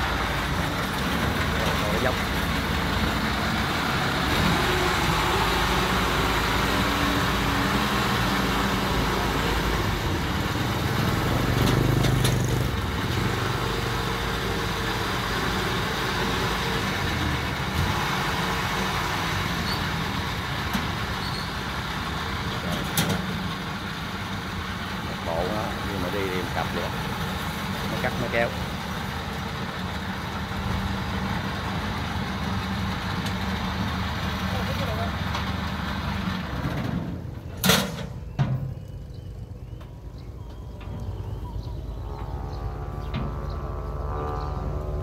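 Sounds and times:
tracked vehicle engine running: 0:00.0 - 0:45.0.

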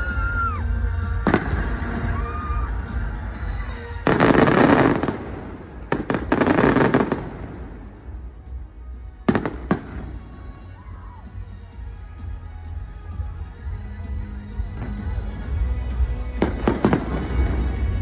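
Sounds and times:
fireworks crackling: 0:00.1 - 0:10.7, 0:14.6 - 0:18.0
fireworks bangs: 0:01.2 - 0:02.2, 0:03.9 - 0:08.2, 0:09.3 - 0:10.3, 0:16.4 - 0:18.0.

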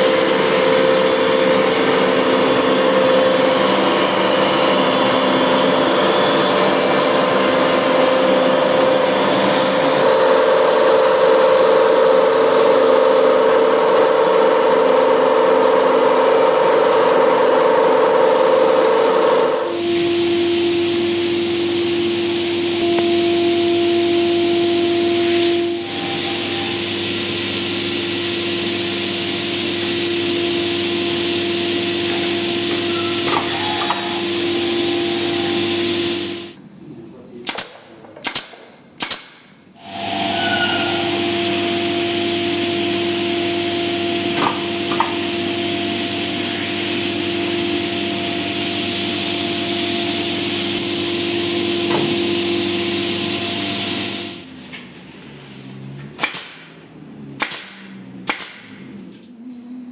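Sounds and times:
machine hum: 0:00.0 - 0:36.6, 0:39.8 - 0:54.5
brad nailer shots: 0:33.2 - 0:35.7, 0:37.4 - 0:40.3, 0:44.2 - 0:45.6, 0:56.2 - 0:56.8, 0:57.4 - 0:58.9.

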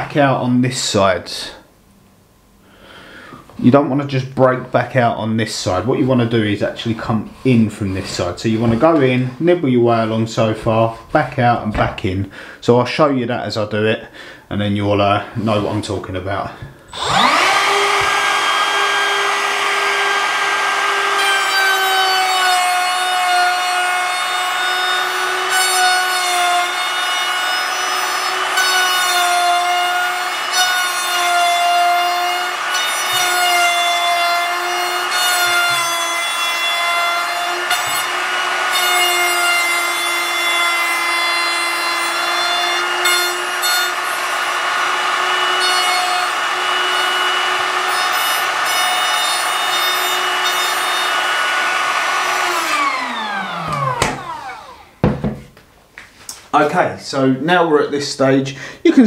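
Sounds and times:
router motor spinning down: 0:16.9 - 0:55.0
router whining while cutting wood: 0:16.9 - 0:55.0.

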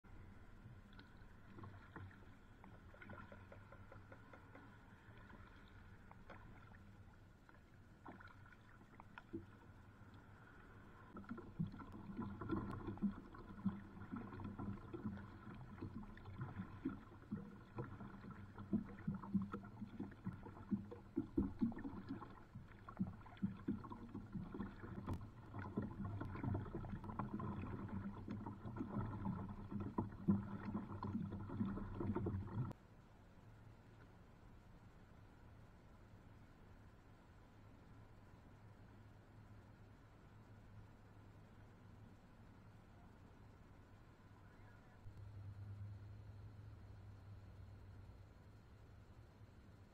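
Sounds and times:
water splashing against kayak hull: 0:00.7 - 0:32.8.

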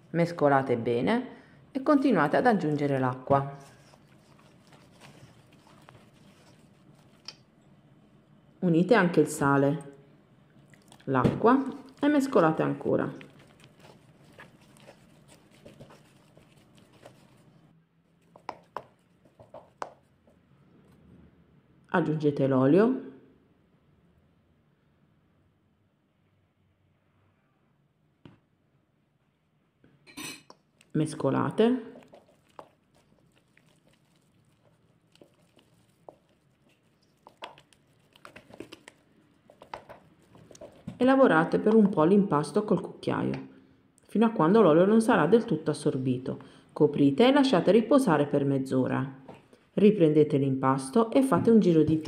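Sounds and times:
dough squelching: 0:01.8 - 0:07.7, 0:10.6 - 0:20.4, 0:30.5 - 0:43.4, 0:51.1 - 0:52.0
wooden spoon tapping bowl: 0:18.4 - 0:20.0.

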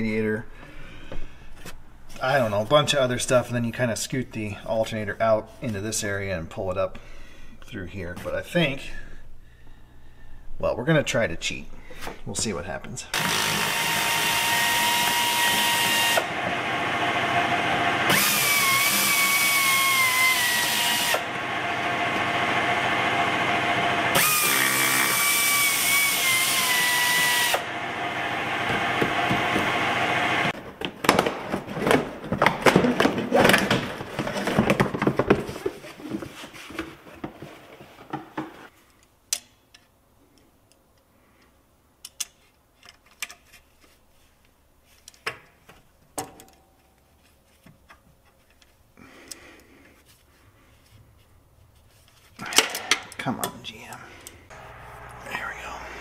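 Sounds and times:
power tool motor running: 0:13.2 - 0:30.5, 0:54.5 - 0:56.0.

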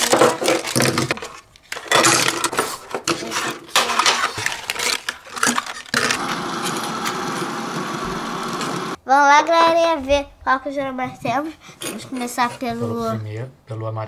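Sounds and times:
objects clattering on a table: 0:00.0 - 0:06.2.

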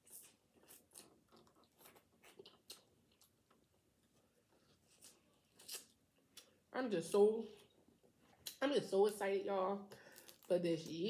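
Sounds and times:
wet chewing mouth sounds: 0:00.0 - 0:03.7.

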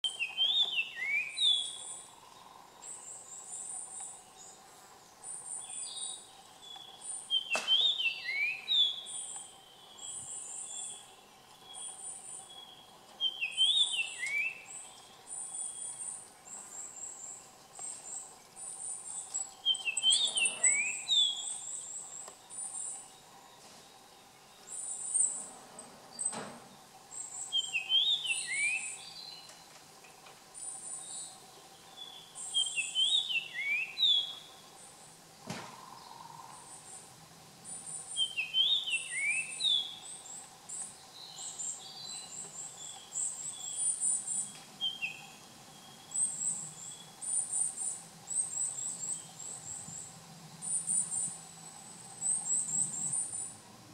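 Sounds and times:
bird whistled song phrase: 0:00.0 - 0:01.8, 0:06.8 - 0:09.2, 0:12.5 - 0:14.8, 0:19.7 - 0:21.6, 0:27.5 - 0:29.3, 0:32.0 - 0:34.4, 0:38.2 - 0:40.0.

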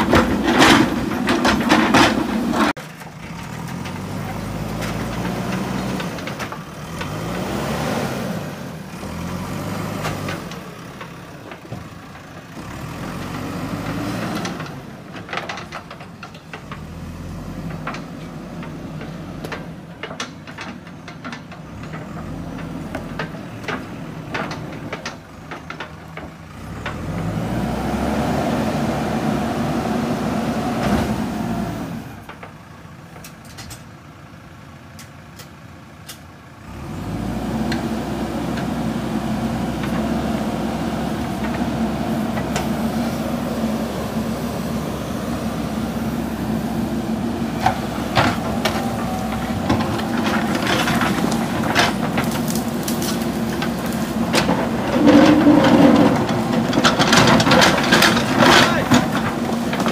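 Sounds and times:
metal knocks and clanks: 0:00.0 - 0:07.4, 0:47.4 - 0:59.9
diesel engine revving: 0:00.0 - 0:20.6, 0:21.6 - 0:32.3, 0:36.4 - 0:59.9.

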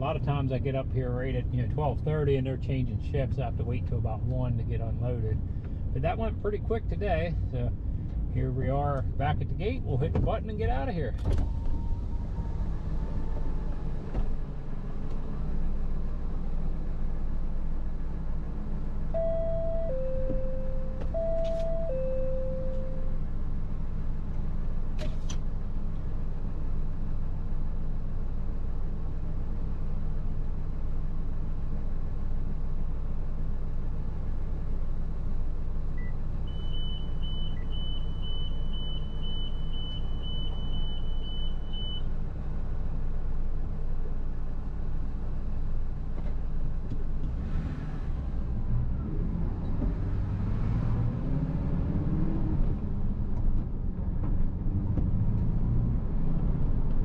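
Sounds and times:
truck engine idling and revving: 0:00.0 - 0:57.0
high electronic beeps: 0:19.2 - 0:23.1.

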